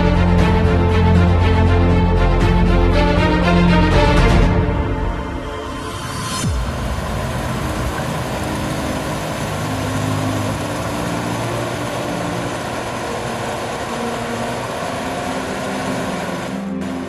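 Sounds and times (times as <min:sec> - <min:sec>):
combine harvester engine: 0:00.0 - 0:17.0
threshing machinery noise: 0:05.7 - 0:17.0.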